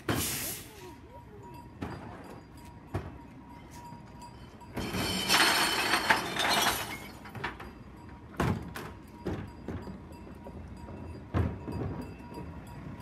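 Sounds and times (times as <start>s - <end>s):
garbage crashing into truck hopper: 4.8s - 7.6s.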